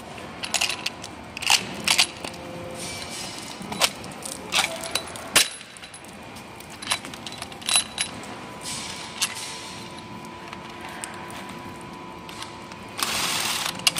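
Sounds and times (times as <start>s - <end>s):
metal clamp clinking: 6.7s - 8.2s.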